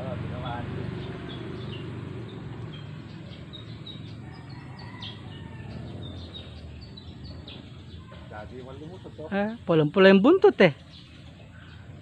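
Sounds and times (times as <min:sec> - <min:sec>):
low background rumble: 0:00.0 - 0:12.0
small birds chirping: 0:00.0 - 0:12.0.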